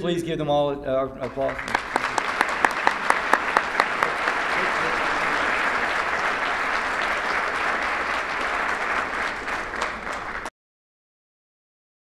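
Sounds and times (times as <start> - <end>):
people applauding: 1.2 - 10.5.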